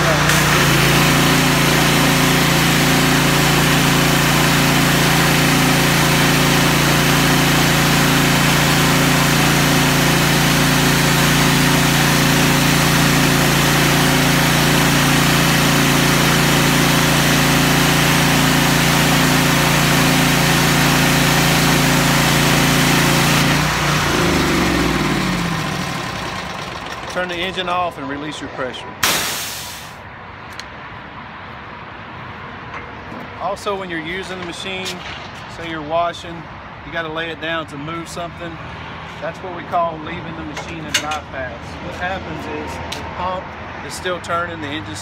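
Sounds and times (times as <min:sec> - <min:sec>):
engine winding down: 0:00.0 - 0:27.7
pressure washer engine and pump: 0:00.0 - 0:30.1, 0:32.1 - 0:45.0.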